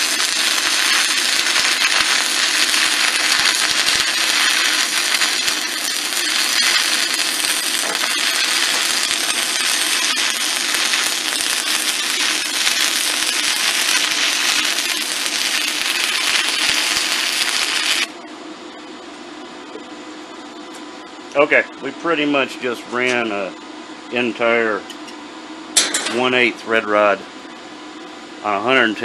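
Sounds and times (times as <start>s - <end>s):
welding arc crackling hiss: 0.0s - 18.2s.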